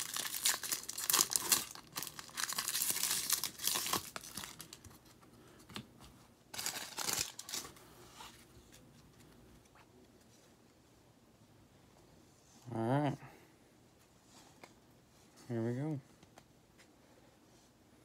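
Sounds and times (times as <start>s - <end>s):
foil wrappers crinkling and tearing: 0.0s - 5.0s, 6.5s - 7.8s
faint handling of cards: 0.4s - 10.9s.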